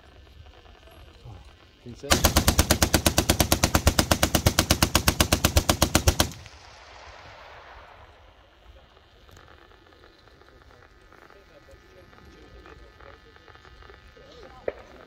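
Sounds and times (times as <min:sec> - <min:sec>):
machine-gun burst: 0:02.0 - 0:08.8
gunfire echo: 0:02.1 - 0:09.0.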